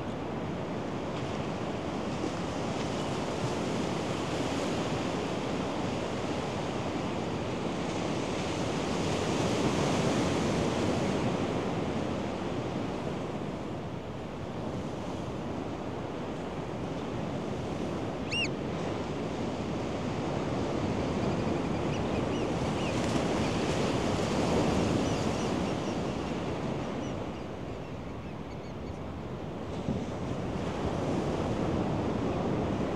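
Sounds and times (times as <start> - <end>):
ocean surf on sandy beach: 0.0 - 28.0, 29.0 - 32.9
bird call: 18.3 - 18.5
faint bird chirps: 18.3 - 18.5.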